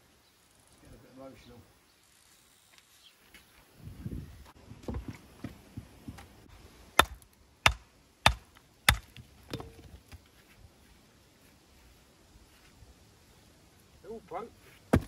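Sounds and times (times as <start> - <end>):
hammer striking stone: 7.0 - 9.8.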